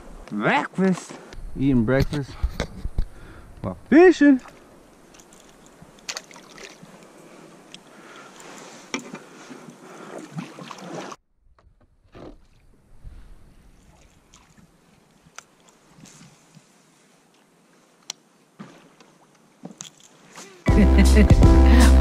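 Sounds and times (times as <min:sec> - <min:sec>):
paddle splashing in water: 0:05.4 - 0:07.0, 0:08.6 - 0:11.2, 0:13.7 - 0:15.0.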